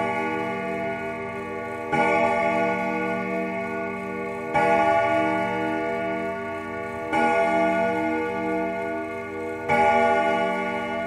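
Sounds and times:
church bell tolling: 0.0 - 11.0.

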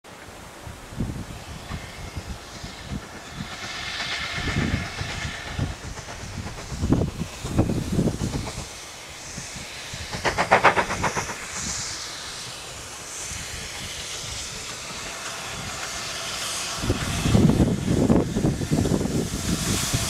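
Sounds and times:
steam hissing: 0.1 - 20.0
steam locomotive chuffing: 0.1 - 20.0
rapid clatter: 10.1 - 11.9.

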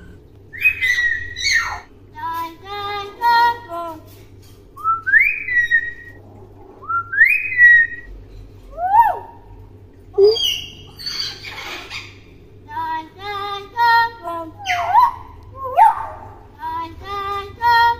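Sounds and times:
myna whistling: 6.8 - 8.1.

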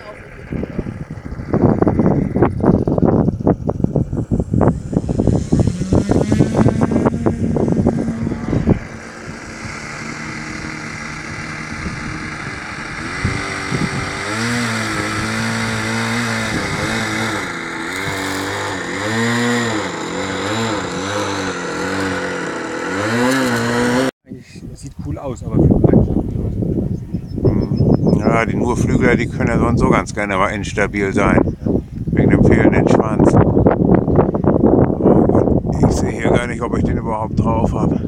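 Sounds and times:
wind buffeting microphone: 0.0 - 23.2, 24.3 - 38.0
model airplane engine droning: 0.0 - 24.1.

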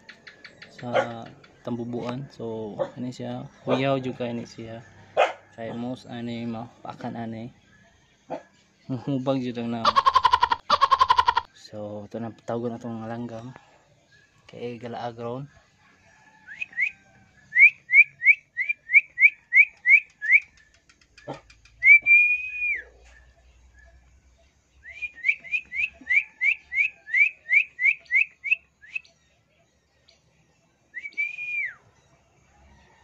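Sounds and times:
man whistling: 16.5 - 20.7, 21.7 - 23.0, 24.8 - 29.1, 31.0 - 31.8.

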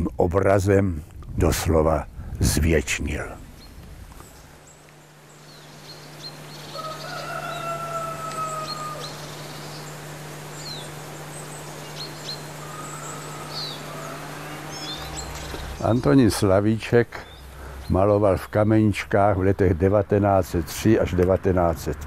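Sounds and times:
steady low hum: 0.0 - 22.0
birds chirping: 1.7 - 22.0
drawn-out falling bird call: 3.7 - 18.0.

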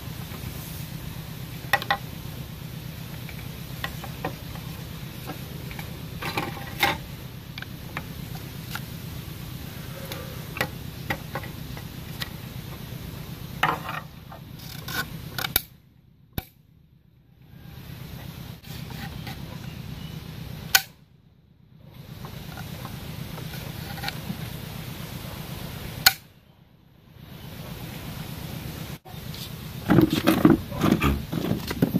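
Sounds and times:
steady low hum: 0.0 - 31.9
bamboo sticks clicking: 14.6 - 15.7, 20.7 - 21.0, 26.0 - 26.3.

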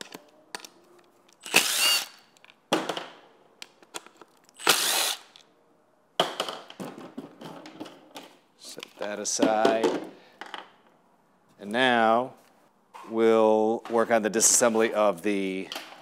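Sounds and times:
impact driver spinning screws: 1.4 - 2.3, 4.5 - 5.4.

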